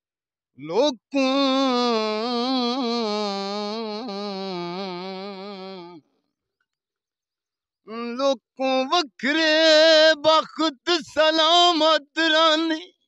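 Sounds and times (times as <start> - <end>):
man singing a long held note: 0.6 - 6.0.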